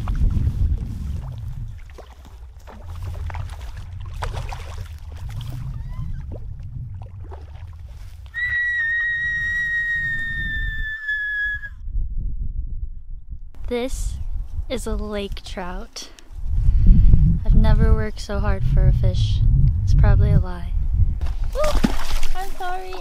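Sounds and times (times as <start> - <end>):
water splashing: 0.0 - 9.6, 21.3 - 23.0
wind rumbling on microphone: 0.0 - 23.0
woman squealing: 8.4 - 11.8.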